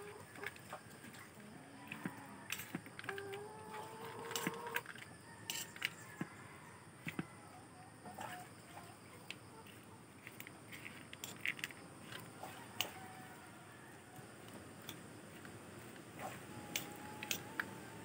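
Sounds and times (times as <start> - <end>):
fork clinking and scraping on plate: 5.5 - 6.0.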